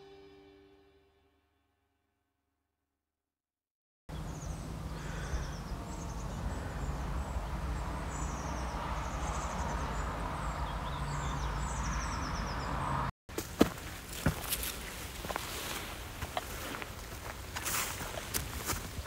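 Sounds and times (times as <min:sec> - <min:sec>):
birds trilling: 0:04.1 - 0:13.0.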